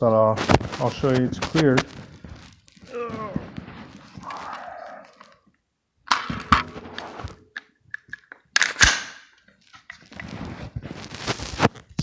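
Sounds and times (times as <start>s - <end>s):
rifle handling rustle: 6.1s - 11.7s
rifle action metallic clicks: 7.9s - 9.3s.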